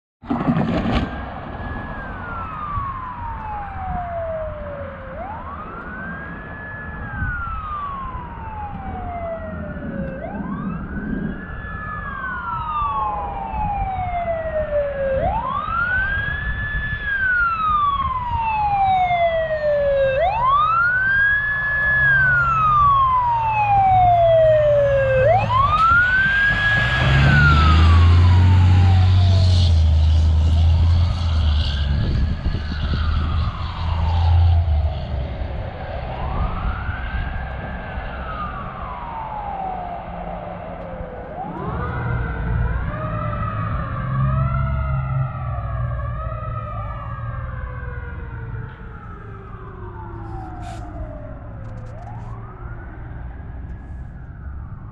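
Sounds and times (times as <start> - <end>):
fire truck siren wailing: 0.2 - 54.9
truck engine rumble: 0.2 - 54.9.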